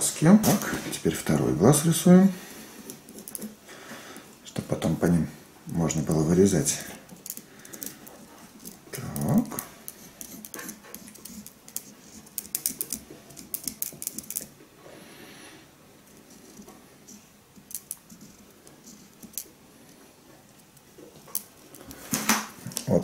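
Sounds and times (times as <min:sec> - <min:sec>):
felt-tip pen scratching on pumpkin: 0:09.1 - 0:12.4.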